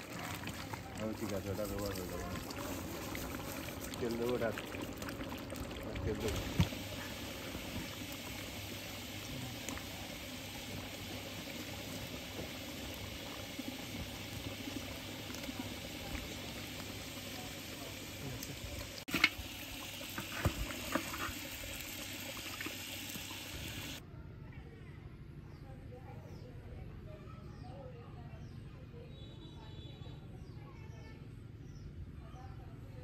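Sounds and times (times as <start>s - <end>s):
curry bubbling in a pot: 0.0s - 24.0s.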